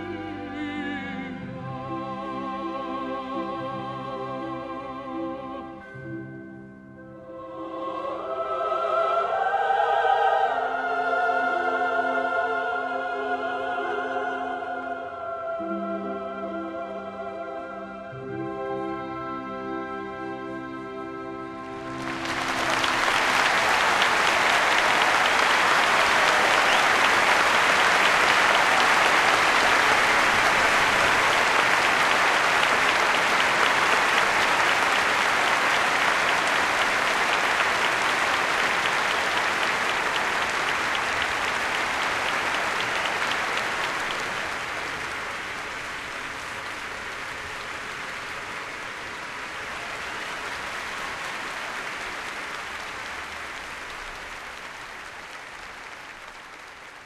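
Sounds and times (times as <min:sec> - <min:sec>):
audience applause: 0:21.7 - 0:57.0.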